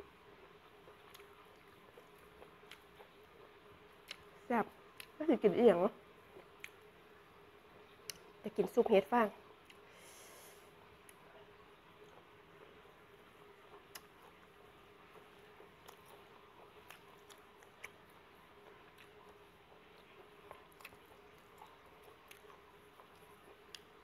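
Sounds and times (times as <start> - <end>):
low steady hum: 0.0 - 24.0
quiet chewing: 0.4 - 7.0, 9.6 - 24.0
wet mouth clicks: 13.8 - 14.2.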